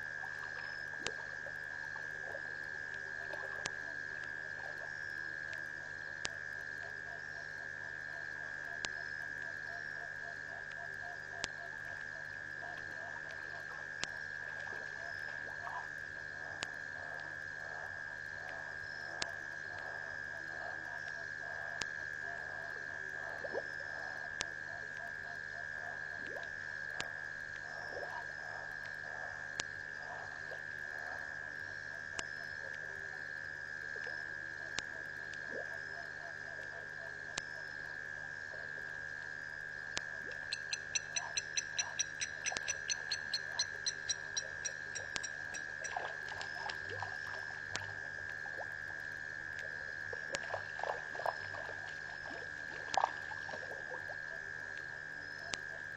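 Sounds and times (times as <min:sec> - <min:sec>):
frogs croaking: 0:00.0 - 0:55.9
sharp clicks: 0:40.0 - 0:46.0
high-pitched drone: 0:40.3 - 0:46.1.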